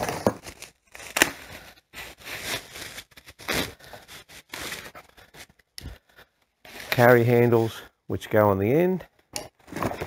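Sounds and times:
packaging rustling and crinkling: 0.0 - 7.3.

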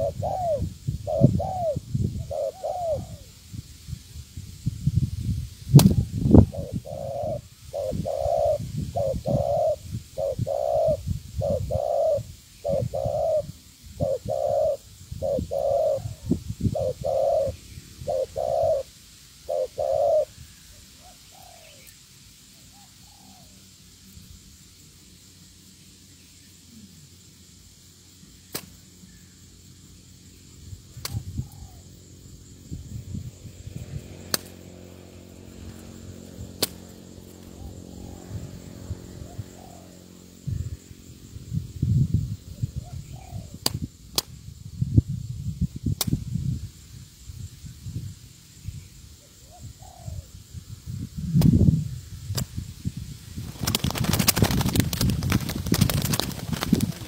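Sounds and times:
dove cooing: 0.0 - 3.4, 6.3 - 21.9, 22.7 - 23.6, 31.1 - 32.0, 34.1 - 40.9, 42.5 - 43.6, 49.2 - 50.3.

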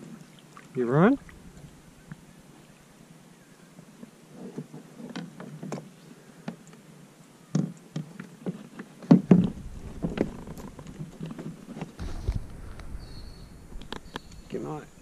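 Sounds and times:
hollow knocks of plastic kayak: 7.6 - 12.5.

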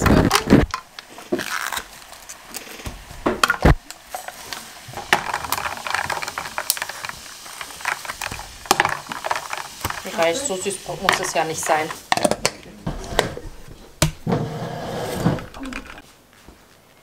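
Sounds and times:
fizz of sparkling water: 4.0 - 12.0.

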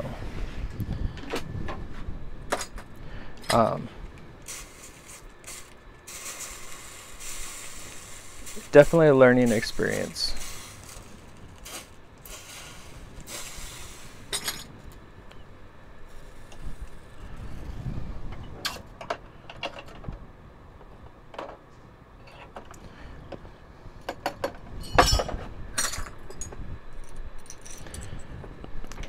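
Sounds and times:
metal clank: 24.2 - 26.2
silverware clinking on steel: 24.8 - 26.4.

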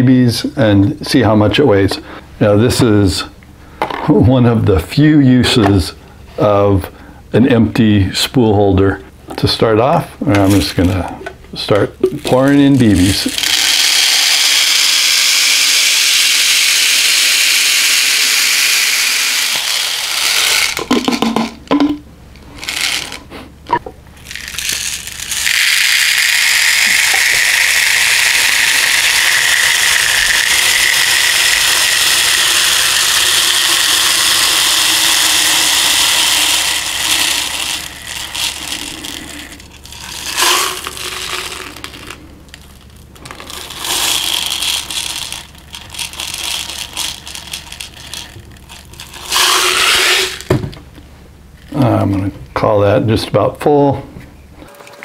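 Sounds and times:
metal balls pouring into plastic: 12.2 - 21.5, 22.6 - 23.2, 24.2 - 50.6.

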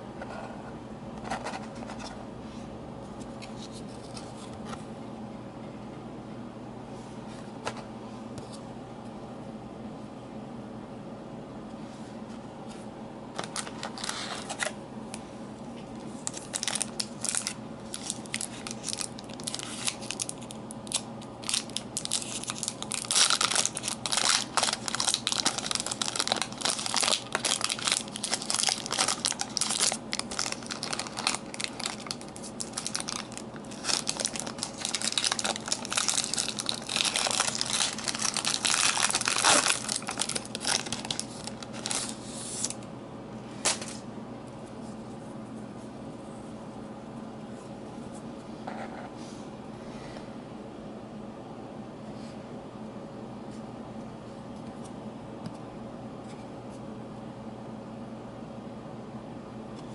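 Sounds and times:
wrapper crinkling and tearing: 13.4 - 14.7, 16.2 - 42.8.

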